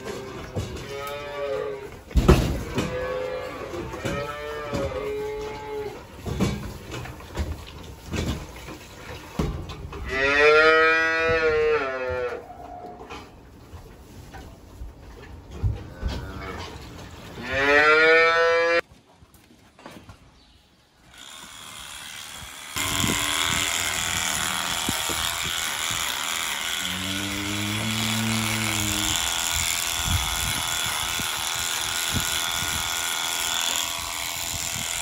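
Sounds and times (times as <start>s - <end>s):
cow mooing: 10.0s - 13.0s, 17.4s - 18.8s, 26.8s - 29.3s
electric clipper running: 21.1s - 35.0s.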